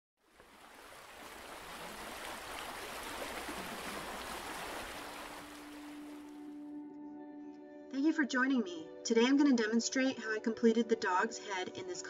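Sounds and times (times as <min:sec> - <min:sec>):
water rushing: 0:00.2 - 0:06.6.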